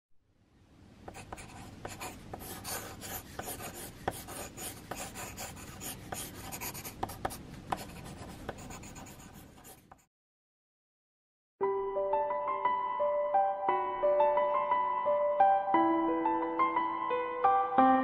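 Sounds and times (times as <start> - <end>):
pencil scratching on paper: 1.1 - 10.1.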